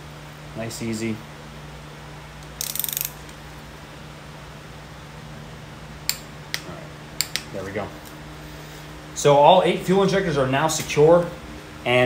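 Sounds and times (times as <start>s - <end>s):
steady low hum: 0.0s - 12.0s
torque wrench sharp clicks: 2.5s - 3.3s
ratcheting torque wrench clicking: 2.6s - 3.3s.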